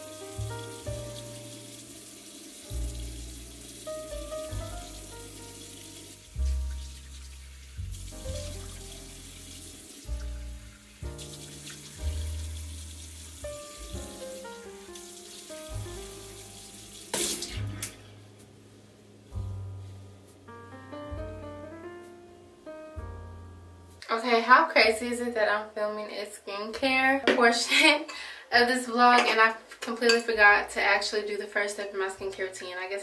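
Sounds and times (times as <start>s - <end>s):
water splashing on face: 16.7s - 18.0s
tap running into sink: 17.0s - 18.0s.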